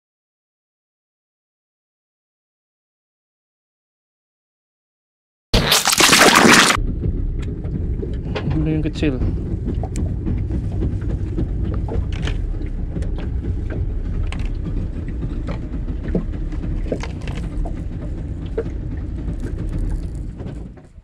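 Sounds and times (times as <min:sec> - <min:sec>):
boat rumbling on water: 0:06.8 - 0:21.0.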